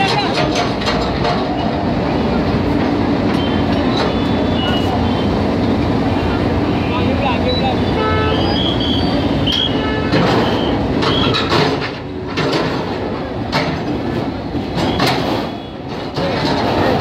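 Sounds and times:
diesel engine running: 0:00.0 - 0:14.9
metal squealing and scraping: 0:07.5 - 0:11.6.

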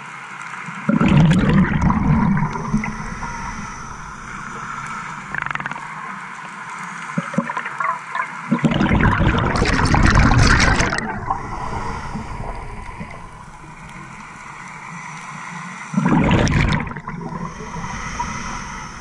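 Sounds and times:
exhaled bubbles gurgling: 0:00.9 - 0:06.3, 0:07.2 - 0:15.0, 0:15.9 - 0:19.0
regulator breathing hiss: 0:01.8 - 0:06.0, 0:11.0 - 0:16.0, 0:17.2 - 0:19.0.

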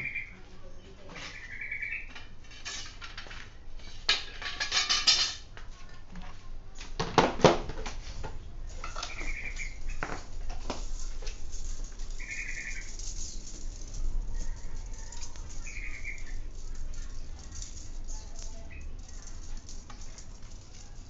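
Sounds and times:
bicycle spokes clinking: 0:08.7 - 0:21.0.

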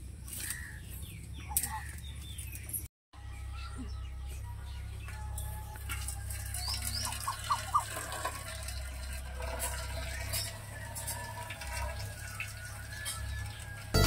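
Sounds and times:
water splashing into steel bowl: 0:05.8 - 0:13.9.

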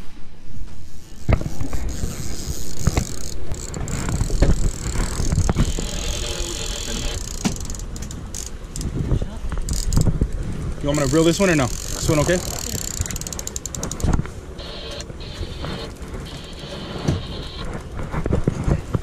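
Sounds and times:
wind on microphone: 0:00.0 - 0:19.0
fishing reel clicking: 0:00.8 - 0:08.9, 0:09.6 - 0:10.1, 0:10.9 - 0:17.7
gear knocking: 0:01.2 - 0:08.9, 0:09.5 - 0:18.3.

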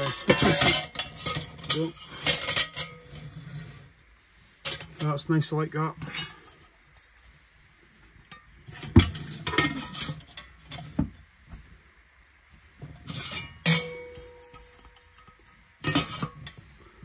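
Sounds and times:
steel pot knocking and scraping: 0:00.0 - 0:11.7, 0:12.7 - 0:17.0
metal clank ringing: 0:13.3 - 0:14.7.

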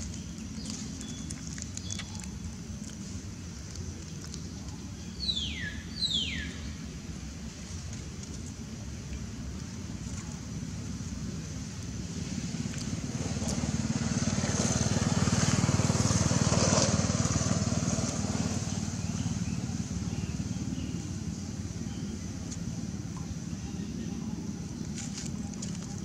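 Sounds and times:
vehicle engine passing by: 0:10.6 - 0:23.7.

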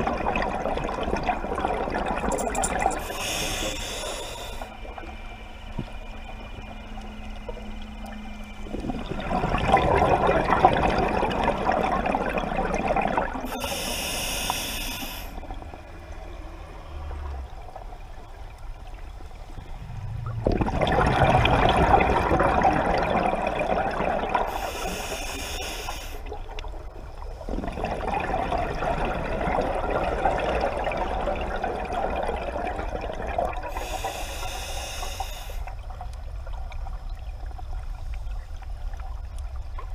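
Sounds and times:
exhaled bubbles rushing: 0:00.0 - 0:03.1, 0:08.6 - 0:13.6, 0:16.9 - 0:24.7, 0:26.3 - 0:34.0
regulator air hiss: 0:03.0 - 0:04.8, 0:13.5 - 0:15.4, 0:24.5 - 0:26.3, 0:33.7 - 0:35.8.

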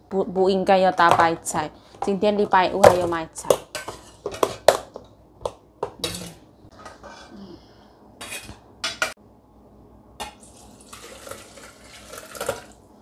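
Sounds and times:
soup pouring into pail: 0:10.4 - 0:12.8.

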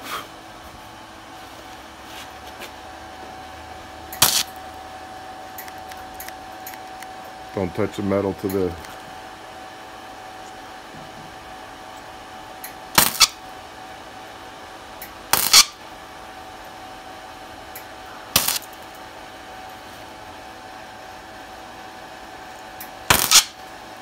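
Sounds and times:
steady hum: 0:00.0 - 0:24.0
mig welder bursts: 0:04.1 - 0:04.7, 0:12.7 - 0:13.5, 0:15.3 - 0:15.8, 0:18.3 - 0:18.9, 0:22.8 - 0:23.7.

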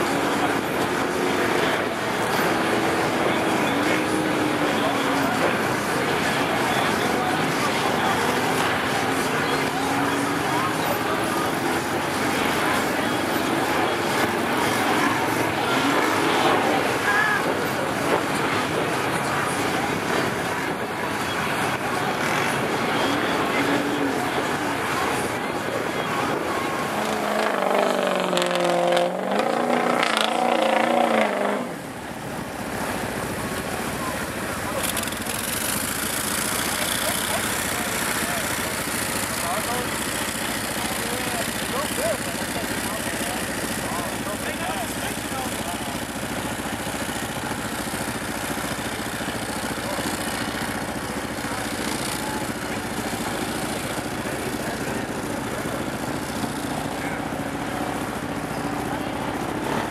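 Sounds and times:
truck engine revving hard: 0:00.0 - 0:59.9
vehicle driving through muddy water: 0:00.0 - 0:59.9.

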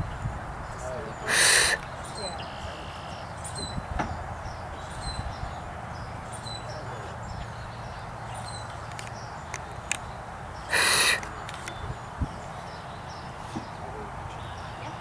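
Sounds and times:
steady outdoor hiss: 0:00.0 - 0:15.0
small bird chirping: 0:01.2 - 0:13.4
loud brief rasping noise: 0:01.3 - 0:01.8, 0:10.7 - 0:11.2.

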